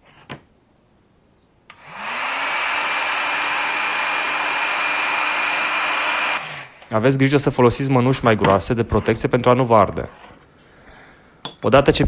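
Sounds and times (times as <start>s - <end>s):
hot air gun fan blowing: 1.7s - 6.9s.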